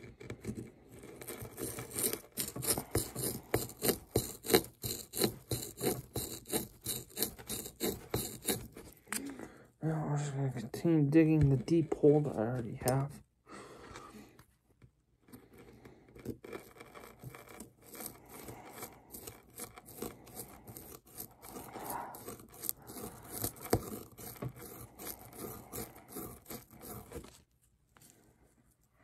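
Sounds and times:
plastic tool scraping hard shell: 0.0s - 9.5s, 15.2s - 28.2s.

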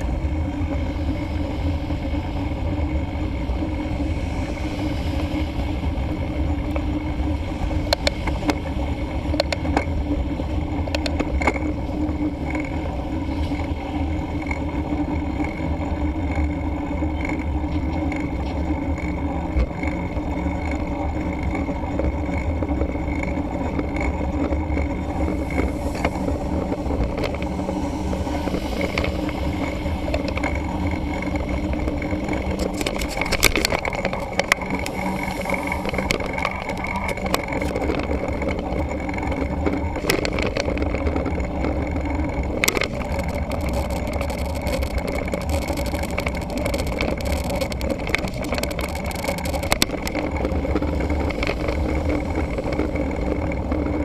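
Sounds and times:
wind and tyre rumble: 0.0s - 54.0s
sharp bike clicks: 14.1s - 54.0s.

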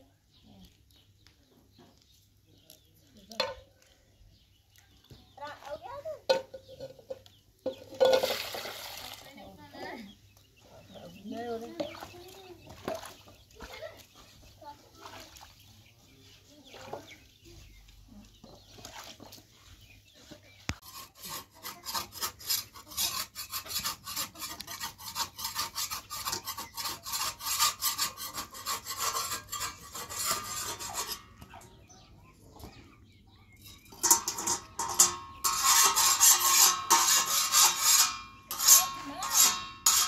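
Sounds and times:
spatula scraping on griddle: 20.7s - 31.6s, 33.6s - 40.0s.

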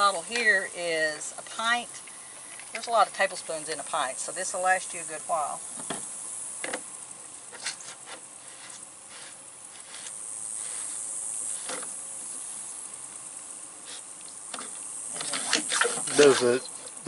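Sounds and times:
high-pitched insect buzz: 0.0s - 17.0s.

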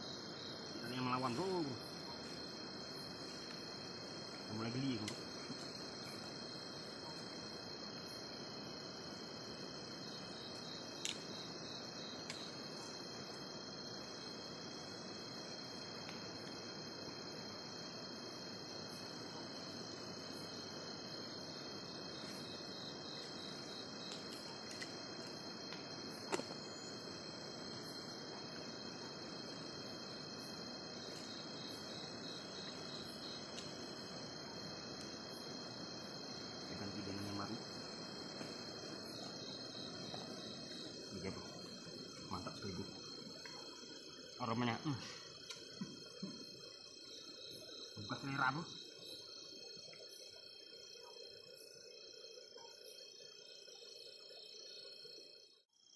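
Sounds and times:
night insects buzzing and trilling: 0.0s - 55.9s.

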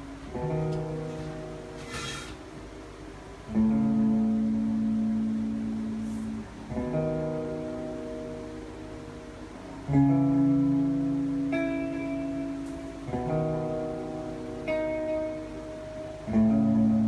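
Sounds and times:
acoustic guitar chords strummed: 0.0s - 2.8s.

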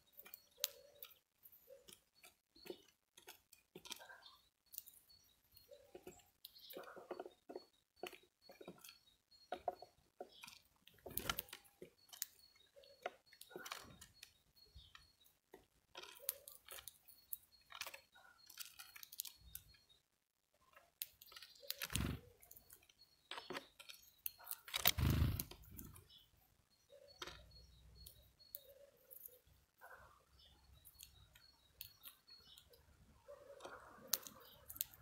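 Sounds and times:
bird cracking seeds: 21.0s - 22.2s, 23.8s - 26.0s.

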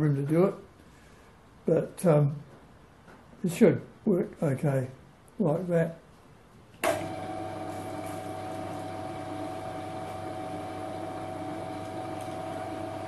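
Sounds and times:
metal lathe motor hum: 7.0s - 13.0s.

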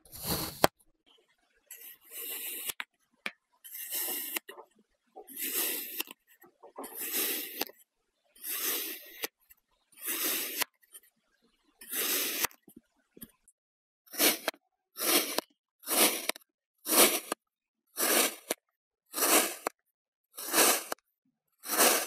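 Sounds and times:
kinetic sand being cut: 0.1s - 0.7s, 1.7s - 2.8s, 3.7s - 4.5s, 5.3s - 6.1s, 7.0s - 7.7s, 8.4s - 9.3s, 10.0s - 10.7s, 11.8s - 12.5s, 14.1s - 17.4s, 18.0s - 19.8s, 20.4s - 21.0s, 21.6s - 22.0s.

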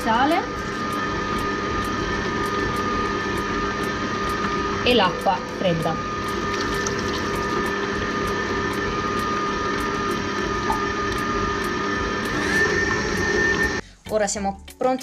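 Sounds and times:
stand mixer motor humming: 0.5s - 13.8s
beater churning batter: 6.0s - 13.8s.

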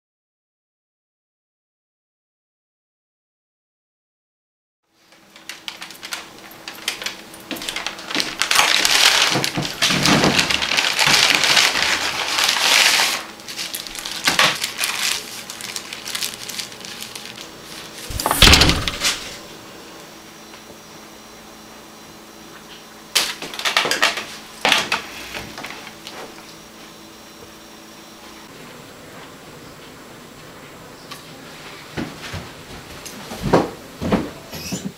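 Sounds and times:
paper bag rustling: 5.2s - 19.5s
thump: 18.1s - 19.2s.

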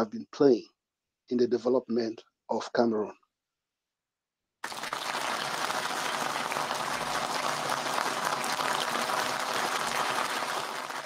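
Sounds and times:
crowd applause: 4.6s - 11.0s.

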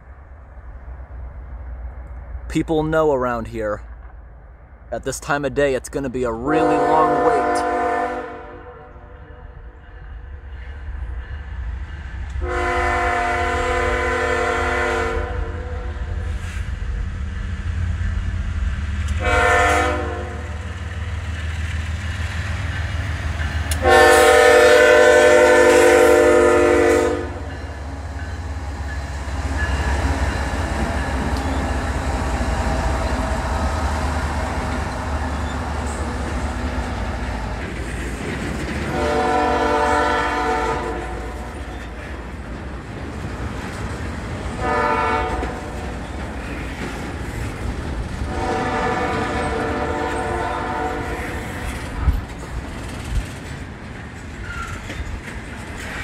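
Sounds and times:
locomotive horn blasts: 6.5s - 8.9s, 12.4s - 15.8s, 19.2s - 20.5s, 23.8s - 27.5s, 38.9s - 41.4s, 44.6s - 45.6s, 48.3s - 51.4s
train cars clattering over crossing: 34.6s - 56.0s.

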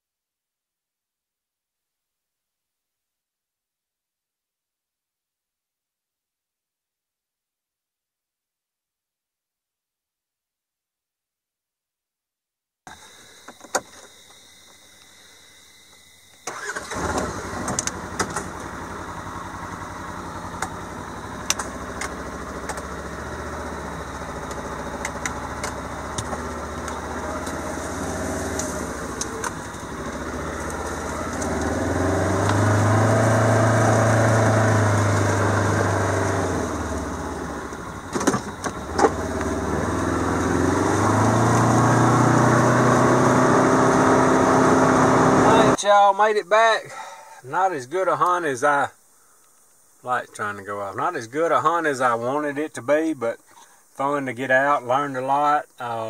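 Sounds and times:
engine running: 16.4s - 45.8s
vehicle engine starting: 16.4s - 45.8s
sharp clunks: 38.1s - 39.2s.

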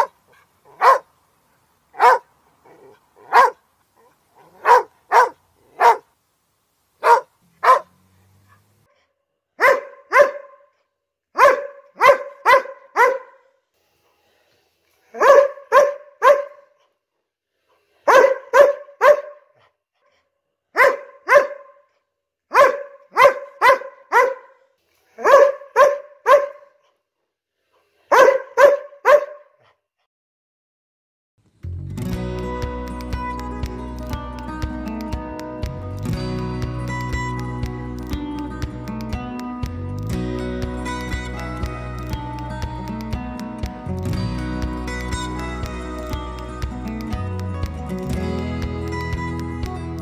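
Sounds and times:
dog barking: 0.0s - 1.1s, 2.0s - 6.1s, 7.0s - 8.0s, 9.6s - 13.6s, 15.1s - 16.8s, 18.0s - 19.6s, 20.7s - 27.0s, 28.0s - 29.8s.

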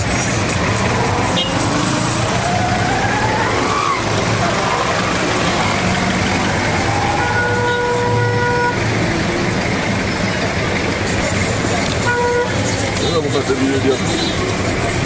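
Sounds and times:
minibus engines idling: 0.0s - 15.0s
vehicle horn: 1.3s - 2.0s, 7.1s - 8.9s, 12.0s - 12.7s.

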